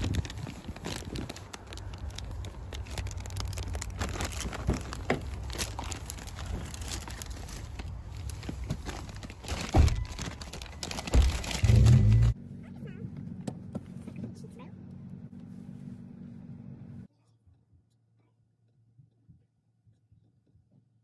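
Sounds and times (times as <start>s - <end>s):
plastic bags crinkling: 0.0s - 12.4s.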